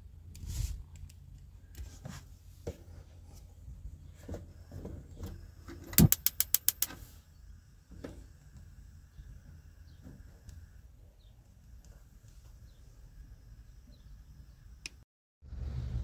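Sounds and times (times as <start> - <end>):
gas hob igniter clicking: 5.9 - 7.0.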